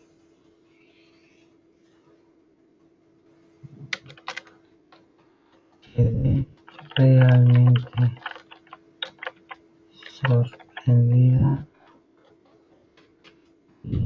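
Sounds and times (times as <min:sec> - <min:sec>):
steady low hum: 0:03.0 - 0:14.0
keyboard key clicks: 0:03.9 - 0:04.5, 0:06.6 - 0:10.9.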